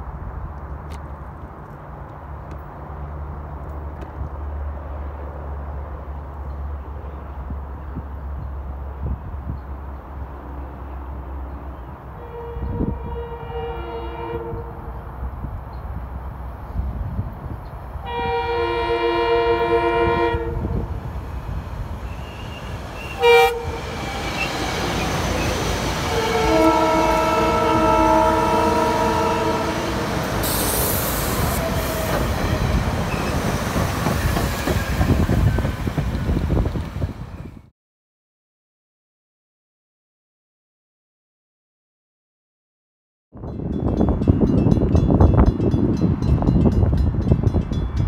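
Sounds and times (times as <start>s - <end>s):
train passing with rumble and rush: 0.0s - 37.7s, 43.4s - 48.0s
train horn blasts: 12.2s - 14.9s, 18.0s - 20.9s, 22.2s - 25.1s, 26.0s - 32.3s.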